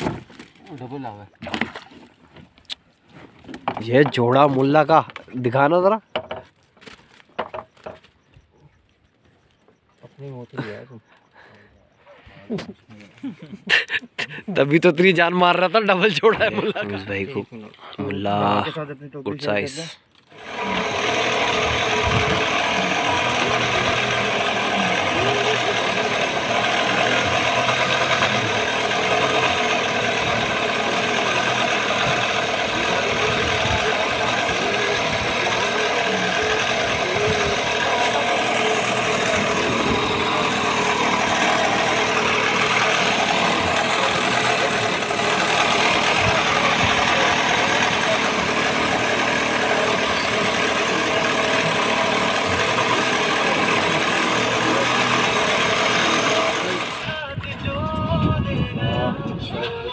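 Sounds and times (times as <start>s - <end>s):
boat engine idling: 20.2s - 58.1s.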